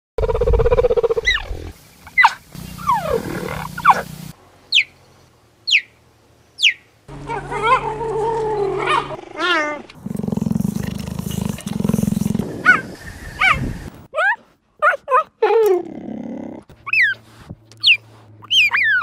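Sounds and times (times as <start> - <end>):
cheetah calling and chirping: 0.2 - 4.1, 4.7 - 5.0, 5.6 - 5.9, 6.6 - 9.6, 10.3 - 13.7, 16.8 - 17.2, 17.8 - 19.0.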